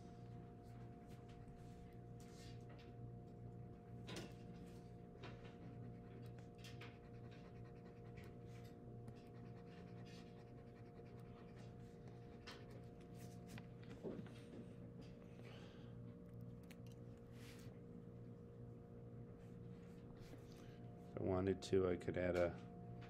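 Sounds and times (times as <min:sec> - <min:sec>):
steady low hum: 0:00.0 - 0:23.0
pencil scratching on paper: 0:06.9 - 0:13.4.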